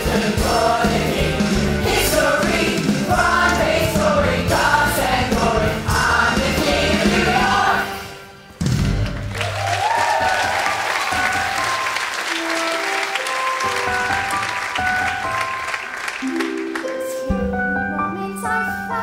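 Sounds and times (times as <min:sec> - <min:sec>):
audience applauding: 0:09.0 - 0:17.1
instrumental music: 0:10.1 - 0:19.0.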